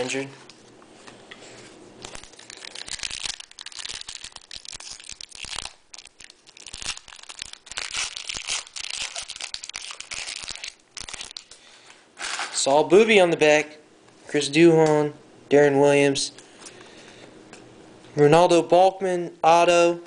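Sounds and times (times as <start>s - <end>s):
foil wrapper tearing and crinkling: 2.0s - 11.5s.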